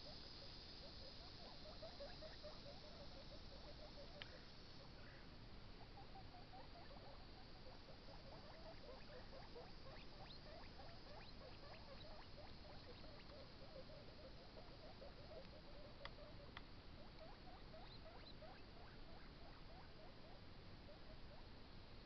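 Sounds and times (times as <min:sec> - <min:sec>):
guinea pig chewing carrot: 0:05.8 - 0:20.4.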